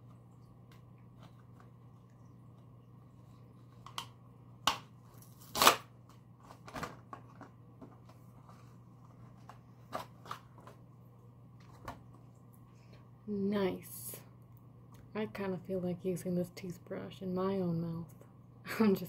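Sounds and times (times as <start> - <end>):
plastic packaging crackling: 4.7 - 10.8.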